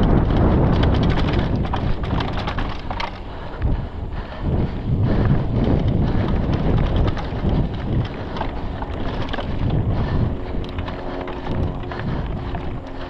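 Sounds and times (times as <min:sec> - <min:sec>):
bike clattering on rough trail: 0:00.0 - 0:13.0
wind rushing over microphone: 0:00.0 - 0:13.0.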